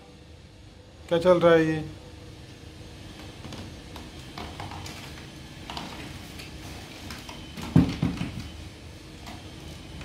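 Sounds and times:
hard plastic knocking: 7.6s - 8.5s.

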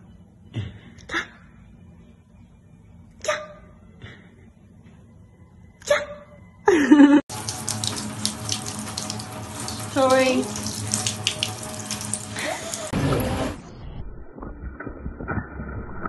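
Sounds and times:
shower spraying water: 7.3s - 13.6s.

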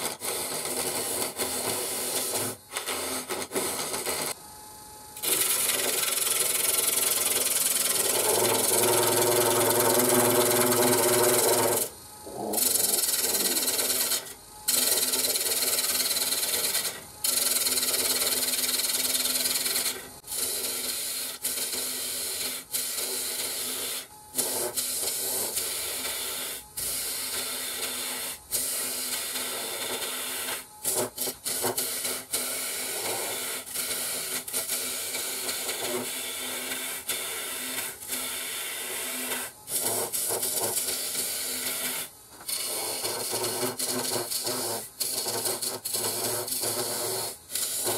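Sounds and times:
gouge cutting wood on lathe: 5.2s - 11.9s, 12.6s - 21.3s
humming tone: 8.3s - 13.6s.

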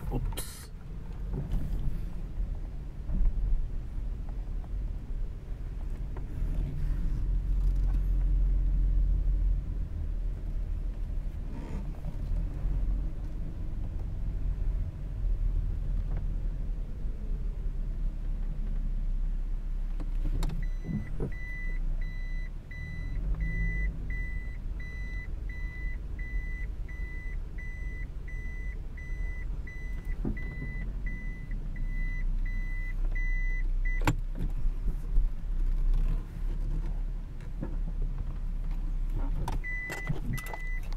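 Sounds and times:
car engine low rumble: 0.0s - 40.9s
electronic warning beeps: 20.6s - 34.0s, 39.6s - 40.9s.

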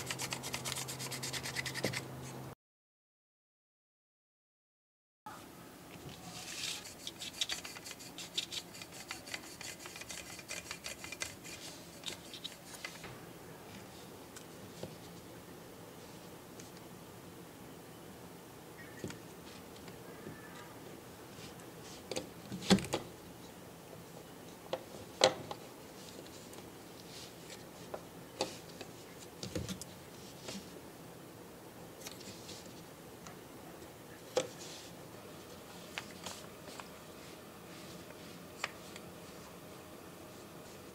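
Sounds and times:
masking tape rustling: 0.0s - 2.4s, 6.0s - 13.1s
sandpaper rubbing on plastic: 0.0s - 2.4s, 6.3s - 13.0s.

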